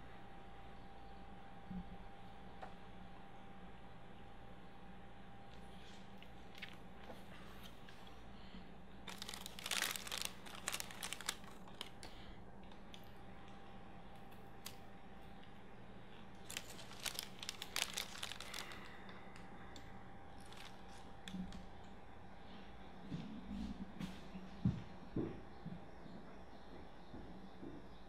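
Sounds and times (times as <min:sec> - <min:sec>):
steady low hum: 0:00.0 - 0:28.0
book pages rustling: 0:09.1 - 0:12.0, 0:16.4 - 0:19.0, 0:20.4 - 0:21.1.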